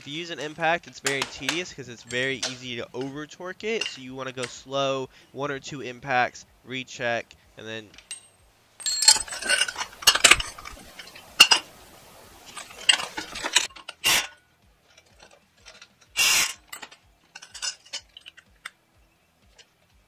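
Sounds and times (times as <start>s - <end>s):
metal tools clinking: 0.0s - 4.8s, 7.9s - 18.8s
impact wrench bursts: 12.5s - 14.4s, 16.1s - 16.9s.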